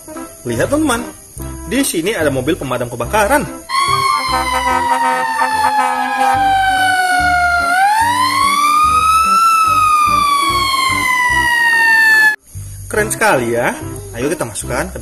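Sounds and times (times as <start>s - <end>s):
fire truck siren wailing: 3.7s - 12.4s.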